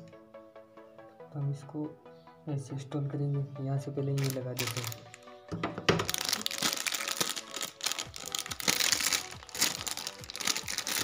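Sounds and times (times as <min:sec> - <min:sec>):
plastic bag crinkling: 0:04.2 - 0:05.2, 0:06.0 - 0:11.0.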